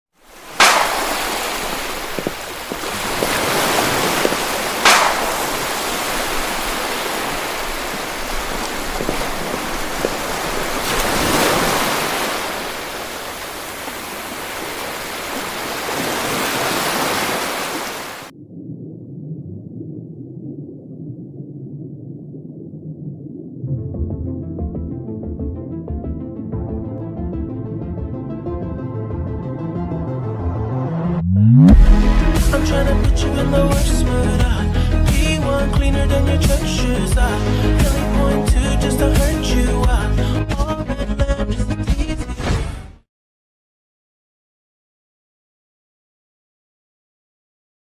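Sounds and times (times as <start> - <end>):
ocean waves surging: 0.2 - 18.3.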